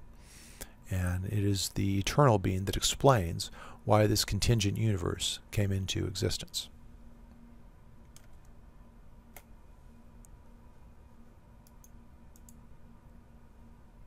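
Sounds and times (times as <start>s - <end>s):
low steady hum: 0.0s - 14.0s
faint computer mouse clicks: 11.6s - 12.6s.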